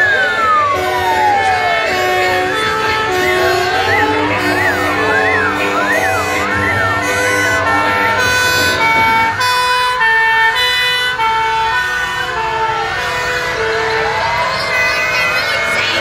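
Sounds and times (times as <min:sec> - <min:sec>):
fire engine sirens wailing: 0:00.0 - 0:16.0
slow gliding siren: 0:00.0 - 0:16.0
two-tone hi-lo horns: 0:00.7 - 0:11.1.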